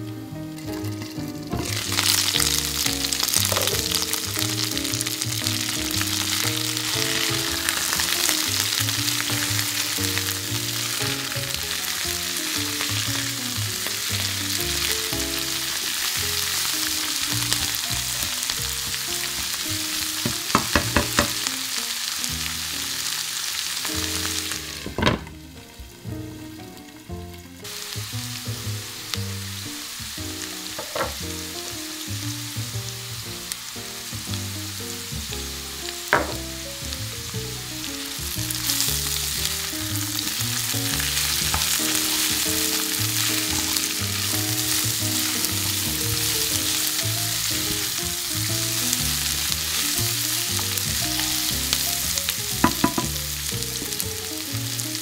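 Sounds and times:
food sizzling in oil: 0.2 - 55.0
utensil clicking on pan: 20.2 - 21.5.

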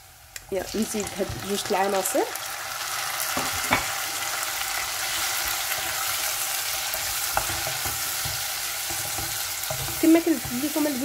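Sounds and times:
vegetables sizzling in hot oil: 0.0 - 11.0
wooden spoon scraping a pot: 5.1 - 11.0.

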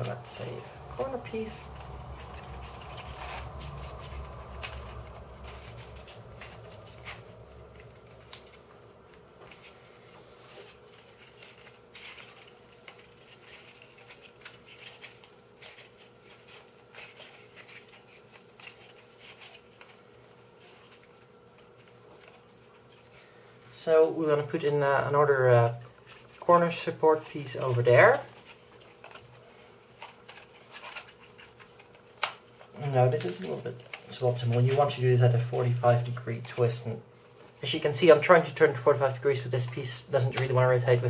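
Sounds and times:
low handling rumble: 0.0 - 9.7
faint steady hum: 0.0 - 41.0.

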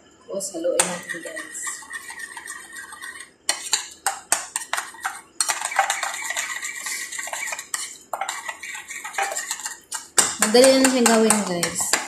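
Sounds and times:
fork beating in bowl: 0.8 - 12.0.

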